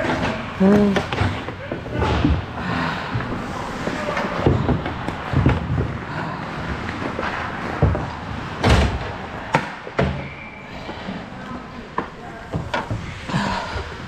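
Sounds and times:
knocks and thumps on rink boards: 0.0s - 10.3s
skates and sticks hitting wood: 0.0s - 10.3s.

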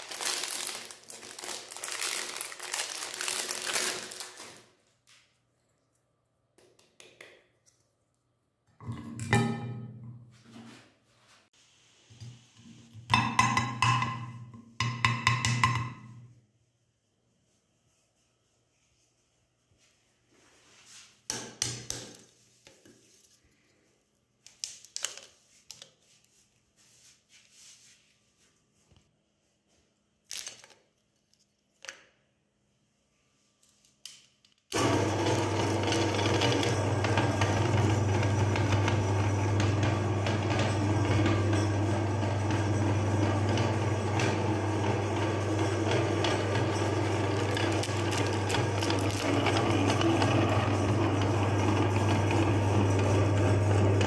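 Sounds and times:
meat grinder motor humming: 34.8s - 54.0s.

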